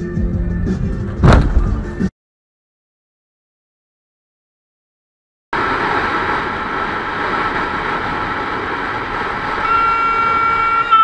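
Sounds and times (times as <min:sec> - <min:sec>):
constant high whine: 0:05.6 - 0:11.0
sharp steady tone: 0:09.6 - 0:11.0.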